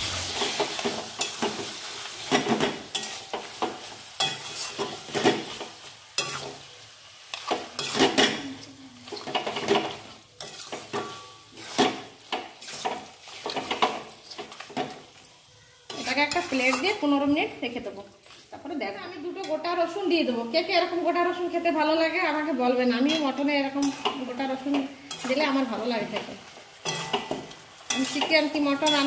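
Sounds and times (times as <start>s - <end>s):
meat sizzling: 0.0s - 29.0s
spatula scraping metal pan: 0.4s - 5.6s, 7.3s - 14.8s, 26.9s - 29.0s.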